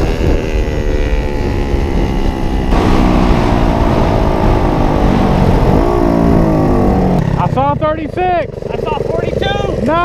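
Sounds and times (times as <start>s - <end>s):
wind noise on microphone: 0.0s - 7.4s
small motorbike engine running: 0.0s - 10.0s.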